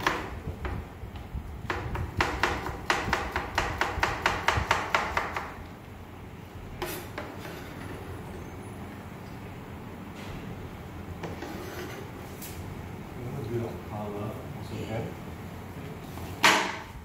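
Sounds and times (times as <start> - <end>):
knife chopping on plastic board: 1.7 - 5.6.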